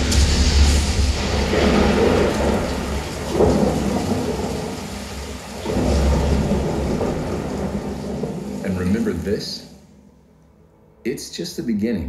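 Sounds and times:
heavy rain: 0:00.0 - 0:10.1
rolling thunder: 0:00.0 - 0:10.1.

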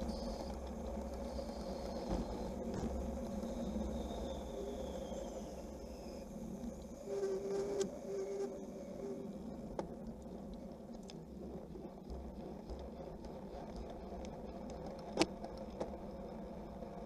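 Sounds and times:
bicycle tyre rumble: 0:00.0 - 0:17.0
bicycle clicks: 0:09.5 - 0:16.8.

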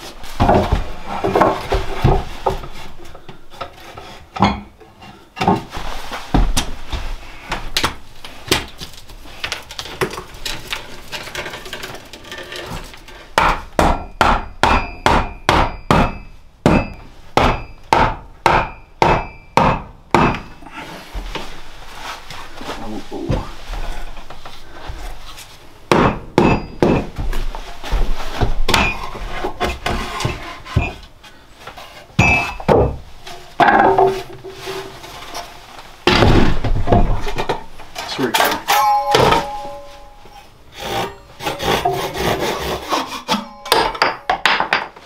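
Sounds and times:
hammer striking wood: 0:13.4 - 0:20.5, 0:25.9 - 0:27.2.

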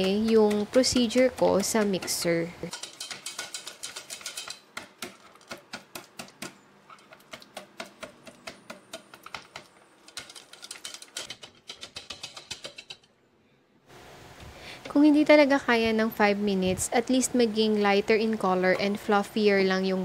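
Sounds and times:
whisk clicking on metal bowl: 0:00.0 - 0:13.1.

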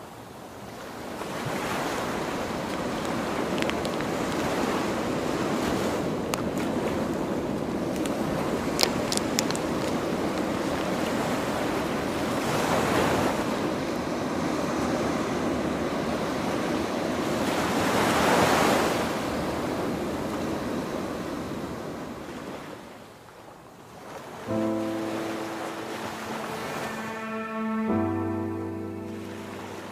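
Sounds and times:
waves washing onto beach: 0:00.0 - 0:29.9
wind: 0:00.0 - 0:29.9
music: 0:24.5 - 0:29.9.

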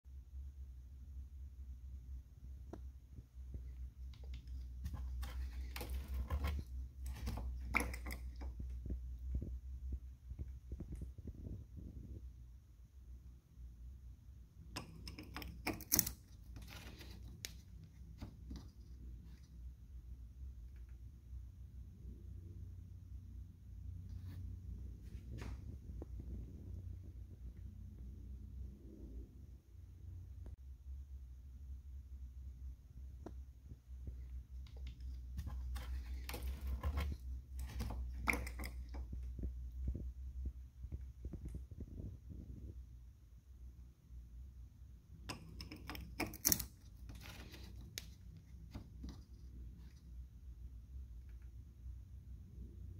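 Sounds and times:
radiator cap clicking and scraping: 0:03.6 - 0:09.0, 0:14.7 - 0:19.5, 0:34.6 - 0:39.8, 0:45.2 - 0:50.0.

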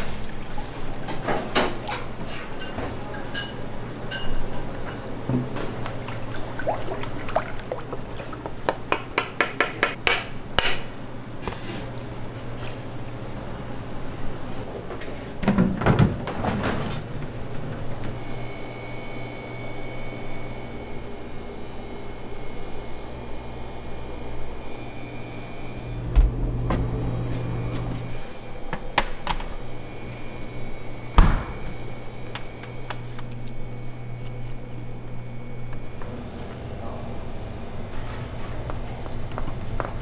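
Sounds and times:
low machine hum: 0:00.0 - 0:40.0
kitchen clatter and knocks: 0:15.4 - 0:17.0.

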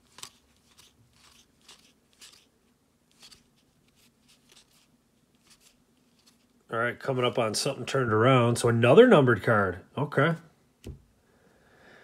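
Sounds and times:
cards sliding off a stack: 0:00.0 - 0:02.5, 0:03.1 - 0:06.5.

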